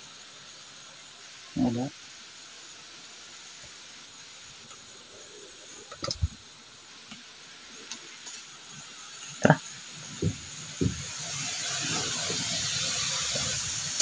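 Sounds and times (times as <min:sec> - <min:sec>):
steady hiss: 0:00.0 - 0:14.0
knocks and thumps on rocks: 0:10.2 - 0:11.1.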